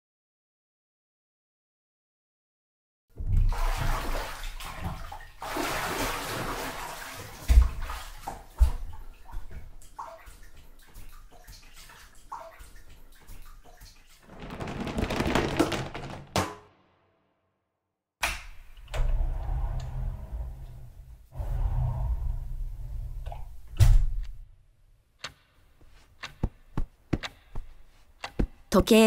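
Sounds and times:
water sloshing in a bathtub: 3.1s - 16.3s
sharp water splashes: 3.4s - 16.2s.

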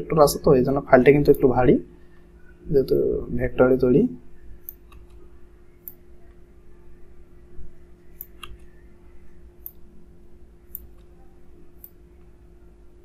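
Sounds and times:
faint electrical hum: 0.0s - 13.0s
computer mouse clicking: 4.6s - 5.2s.

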